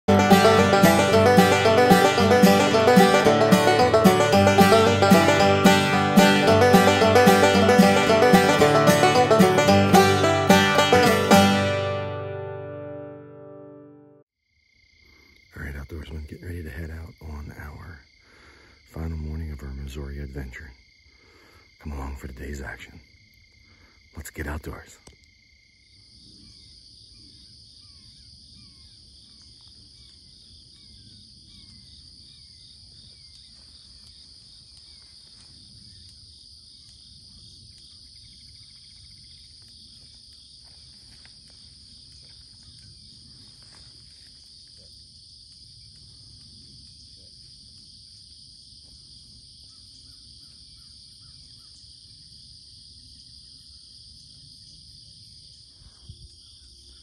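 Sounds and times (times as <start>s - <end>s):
insects trilling: 14.5s - 57.0s.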